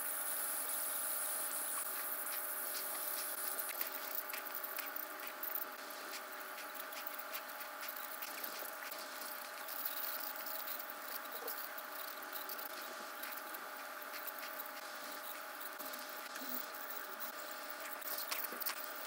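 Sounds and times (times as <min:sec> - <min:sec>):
dental scaler whine: 0:00.0 - 0:19.0
water spray hiss: 0:00.2 - 0:04.5.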